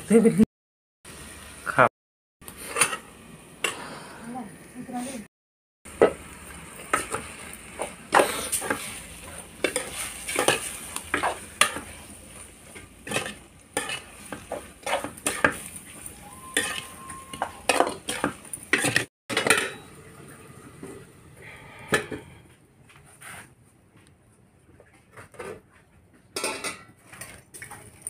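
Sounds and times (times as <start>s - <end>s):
faint sizzle: 2.5s - 5.3s, 5.9s - 22.6s
utensil scraping metal pan: 2.6s - 3.1s, 8.2s - 11.9s, 13.0s - 19.8s.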